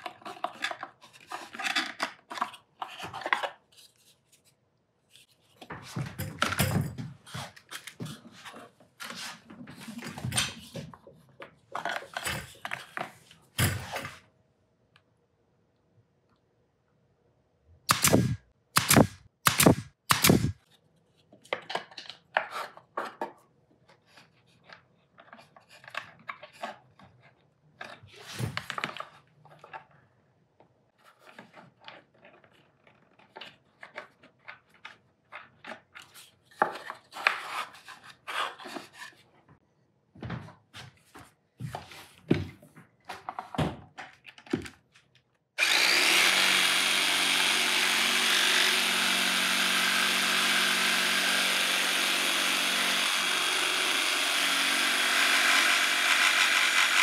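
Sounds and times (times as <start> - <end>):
tools and parts being handled: 0.0 - 14.3, 20.4 - 30.0, 30.9 - 39.6
power tool running: 17.9 - 20.6, 45.6 - 57.0.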